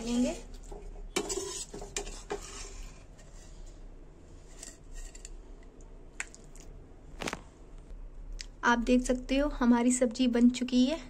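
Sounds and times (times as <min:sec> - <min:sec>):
metal spatula scraping a pan: 0:00.0 - 0:05.6.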